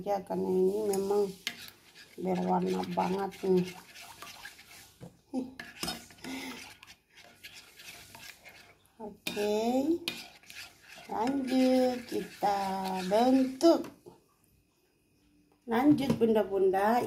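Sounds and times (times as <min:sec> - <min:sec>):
metal spoon scraping plate: 0:00.8 - 0:04.9, 0:05.6 - 0:13.6.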